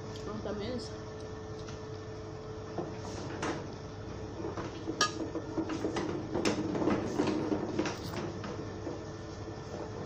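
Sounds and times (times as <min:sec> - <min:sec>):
dishes and cutlery clinking: 0:05.0 - 0:05.3.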